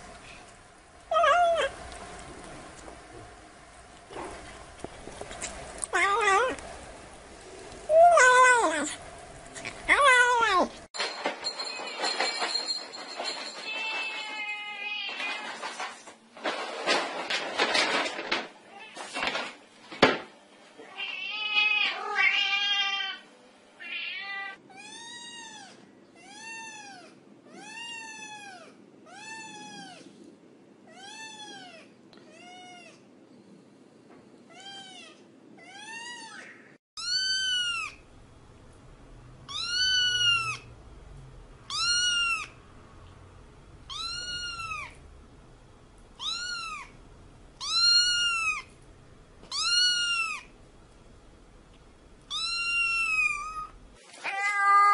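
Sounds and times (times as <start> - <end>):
cat meowing: 20.8 - 23.2, 23.8 - 30.0, 34.5 - 38.0, 39.5 - 40.7, 41.7 - 42.6, 43.9 - 45.0, 46.2 - 47.0, 47.6 - 48.7, 49.5 - 50.5, 52.3 - 54.9.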